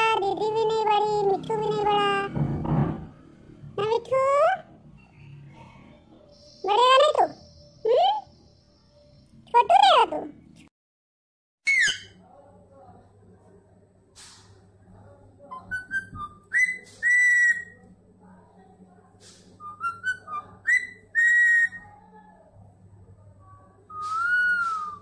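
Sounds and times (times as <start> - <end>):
parakeet whistling and chirping: 11.6 - 12.1, 15.5 - 17.8, 19.6 - 21.9, 23.9 - 25.0.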